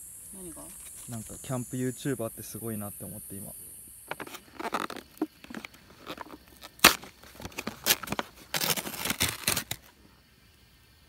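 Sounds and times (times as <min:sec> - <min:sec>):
lid snapping: 0:04.1 - 0:09.8
plastic wrap crinkling: 0:04.1 - 0:09.9.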